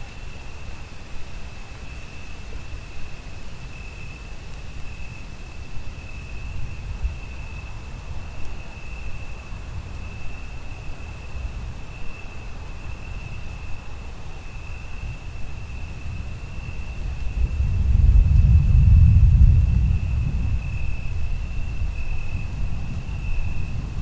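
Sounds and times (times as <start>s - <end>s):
crickets trilling: 0.0s - 24.0s
distant thunder rumble: 15.9s - 24.0s.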